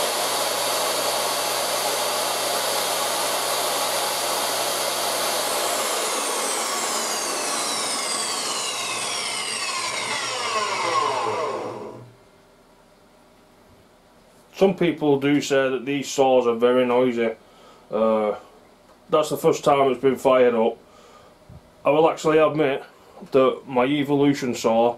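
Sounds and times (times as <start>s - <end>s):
saw winding down whine: 0.0s - 12.2s
table saw motor running: 0.0s - 12.2s.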